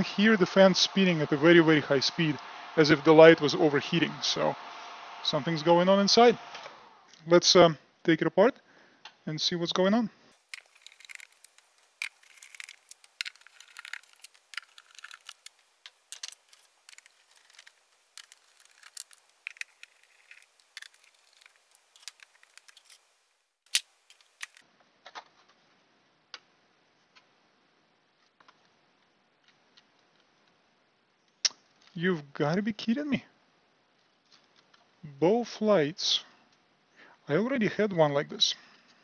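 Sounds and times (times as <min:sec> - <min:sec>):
screwdriver scratchy clicks: 0:10.5 - 0:24.6.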